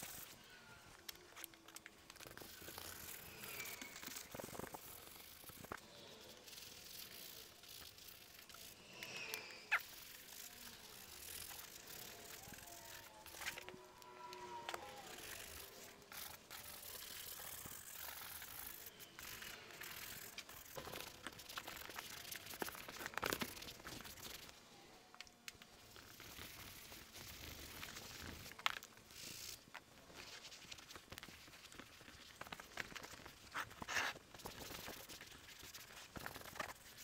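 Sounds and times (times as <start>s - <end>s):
brush scrubbing leather: 2.2s - 8.8s, 9.7s - 13.6s, 30.3s - 37.0s.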